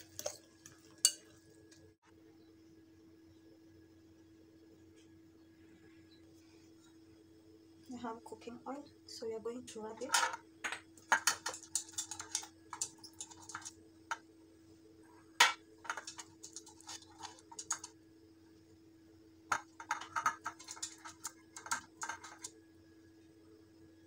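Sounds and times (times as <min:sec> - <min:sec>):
faint steady hum: 0:00.0 - 0:24.0
pastry brush tapping muffin tin: 0:19.5 - 0:22.5.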